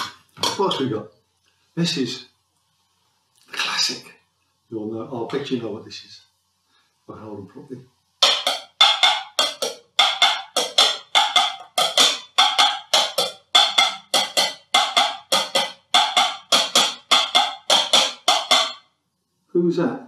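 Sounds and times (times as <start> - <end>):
bowls knocking like hooves: 0.0 - 0.9, 8.2 - 18.9.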